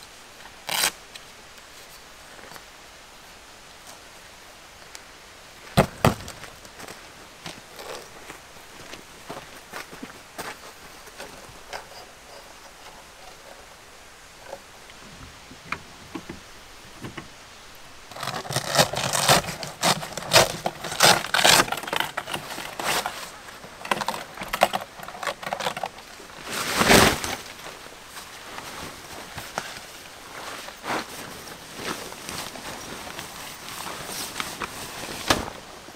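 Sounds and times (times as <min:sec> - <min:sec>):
rustling and scraping of fabric: 0:18.1 - 0:35.9
fabric shelter swishing: 0:26.4 - 0:35.8.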